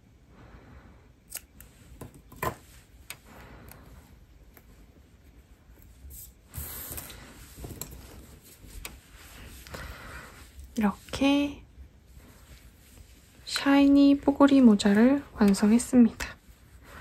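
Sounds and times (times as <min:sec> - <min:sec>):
scissors snipping: 0:01.3 - 0:01.7
soft rustling of yarn hat: 0:02.6 - 0:17.0.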